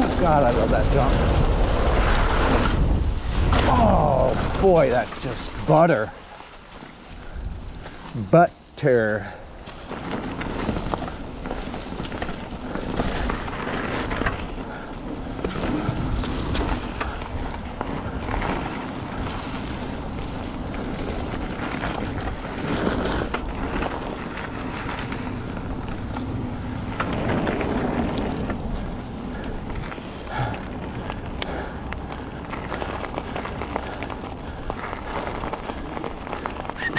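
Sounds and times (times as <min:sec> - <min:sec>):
wind rushing over microphone: 0:00.0 - 0:06.2.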